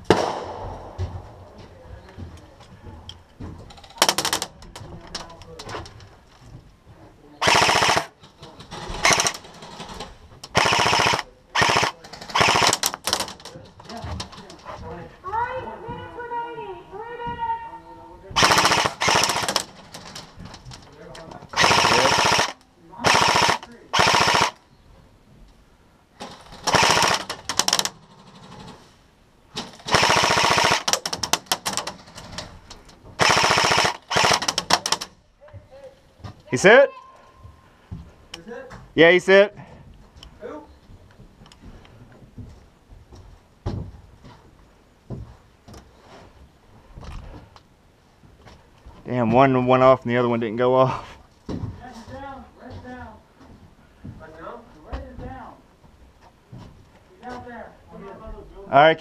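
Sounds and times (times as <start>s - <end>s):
airsoft rifle full-auto bursts: 7.4s - 8.2s, 9.0s - 9.4s, 10.5s - 13.2s, 18.4s - 19.7s, 21.6s - 24.6s, 26.5s - 27.9s, 29.8s - 31.7s, 33.2s - 35.0s.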